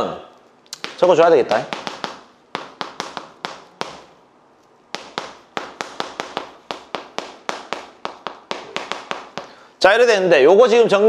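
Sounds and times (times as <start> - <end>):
chalk tapping on chalkboard: 0.8 - 4.2, 4.9 - 9.6.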